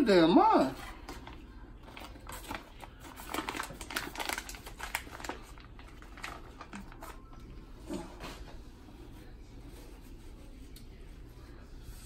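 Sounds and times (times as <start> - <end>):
paper bag crinkling: 0.8 - 7.7.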